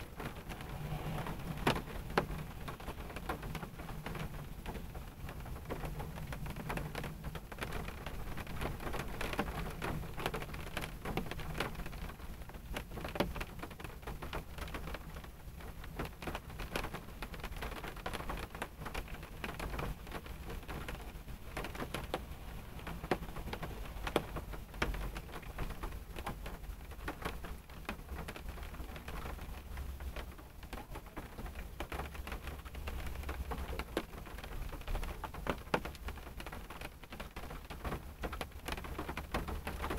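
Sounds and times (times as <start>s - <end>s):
rain tapping on car: 0.0s - 39.9s
low rumble: 0.2s - 3.1s.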